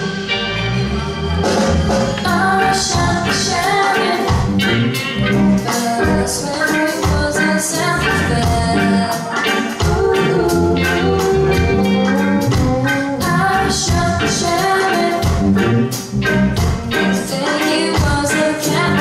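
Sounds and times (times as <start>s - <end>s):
live reggae rock band: 0.0s - 19.0s
steady drum beat: 0.0s - 19.0s
women singing: 2.2s - 4.4s, 5.5s - 12.4s, 13.1s - 15.3s, 17.1s - 19.0s.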